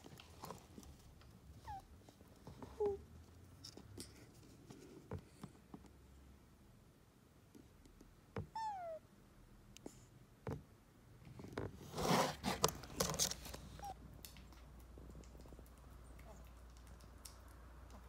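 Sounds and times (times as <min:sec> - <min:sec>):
kitten meowing: 0:08.4 - 0:09.0.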